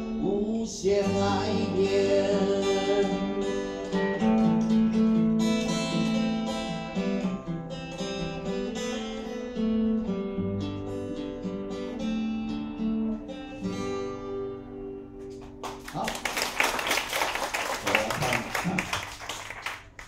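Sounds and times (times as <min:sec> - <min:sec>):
acoustic guitar notes: 0:00.0 - 0:16.1
audience applause: 0:15.5 - 0:20.0.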